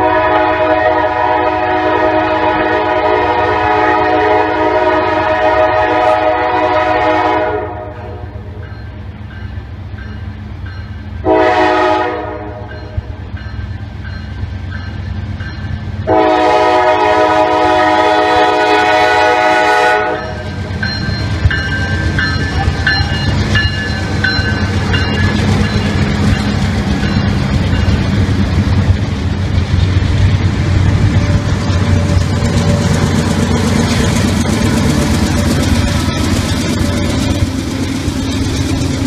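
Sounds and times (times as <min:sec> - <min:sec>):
locomotive air horn blasts: 0:00.0 - 0:08.6, 0:11.2 - 0:12.8, 0:16.0 - 0:20.4
diesel locomotive engines rumbling: 0:00.0 - 0:39.0.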